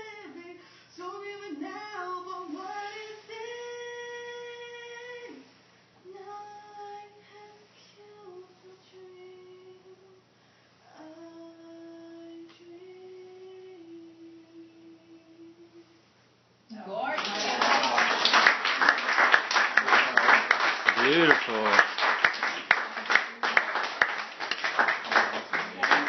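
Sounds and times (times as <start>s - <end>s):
woman singing unaccompanied: 0.0s - 5.4s, 6.1s - 10.3s, 10.9s - 16.0s.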